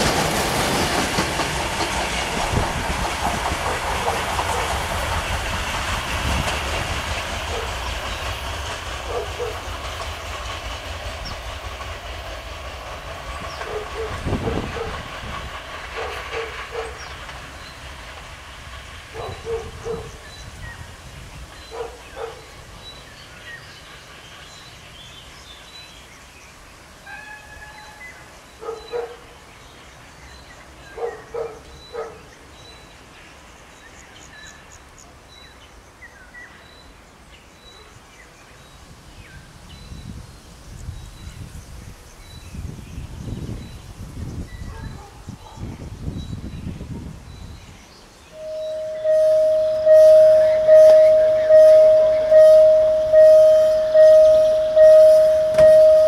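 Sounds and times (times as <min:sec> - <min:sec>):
wheels clicking over rail joints: 0:00.0 - 0:20.1, 0:49.8 - 0:56.0
diesel railcar running: 0:00.0 - 0:56.0.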